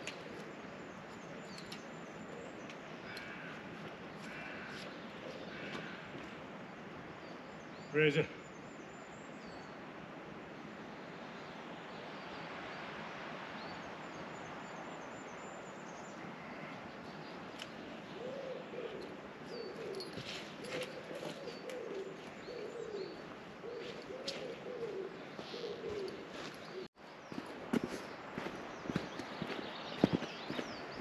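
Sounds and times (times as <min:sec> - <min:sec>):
small birds chirping: 0:00.0 - 0:09.8, 0:13.6 - 0:31.0
pigeon cooing: 0:18.2 - 0:26.9.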